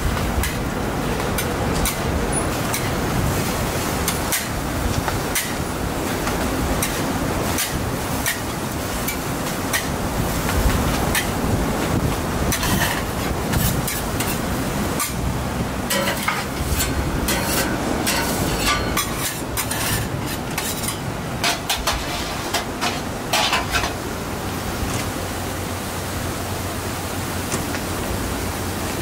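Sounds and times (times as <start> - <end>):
food sizzling: 0.0 - 24.1
metal spatula scraping griddle: 12.5 - 15.2, 15.9 - 24.0.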